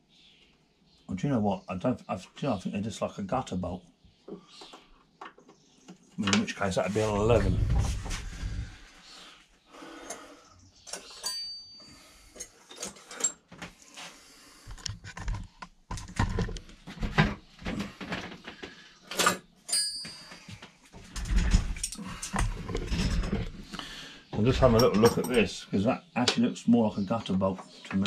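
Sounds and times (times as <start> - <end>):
metal tools clinking: 10.9 - 13.4, 19.1 - 20.6, 21.2 - 23.4, 24.5 - 25.6
metallic rings: 10.9 - 13.4, 19.2 - 20.5, 24.6 - 25.5.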